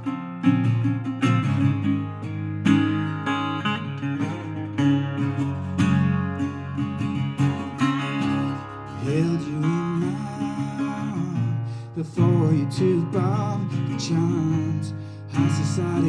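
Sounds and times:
resonator guitar strumming: 0.0s - 16.0s
man singing: 8.9s - 16.0s.

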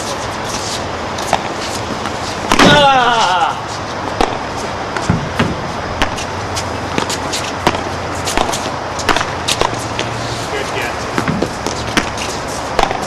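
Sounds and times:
low background rumble: 0.0s - 13.0s
ball bouncing off court and walls: 1.2s - 3.4s, 4.0s - 10.2s, 11.1s - 13.0s
paddles striking ball: 4.2s - 4.4s, 5.0s - 6.3s, 6.9s - 10.1s, 11.1s - 13.0s.

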